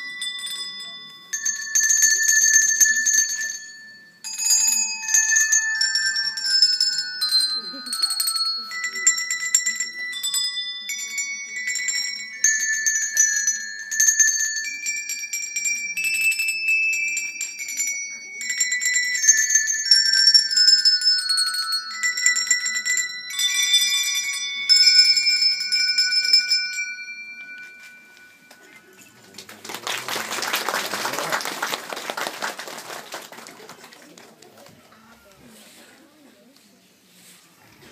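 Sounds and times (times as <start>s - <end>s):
handbell melody: 0.0s - 31.3s
applause: 29.2s - 34.8s.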